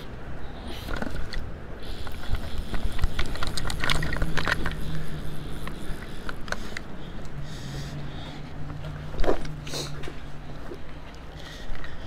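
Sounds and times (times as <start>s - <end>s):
steady low hum: 0.0s - 12.0s
fishing reel clicks and rattles: 0.8s - 6.9s.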